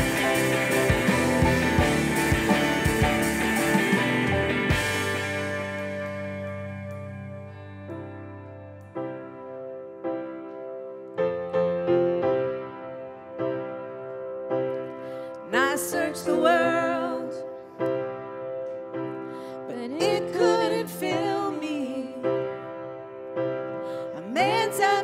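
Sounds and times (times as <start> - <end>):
piano and keyboard chords: 0.0 - 25.0
person singing: 15.4 - 17.6, 19.7 - 22.4.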